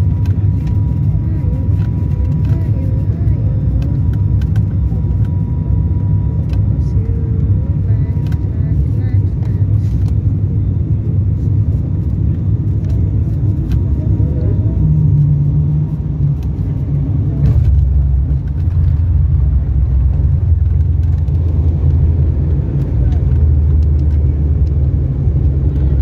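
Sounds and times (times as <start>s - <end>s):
airliner engines and propellers droning: 0.0s - 26.0s
runway rumble: 0.0s - 26.0s.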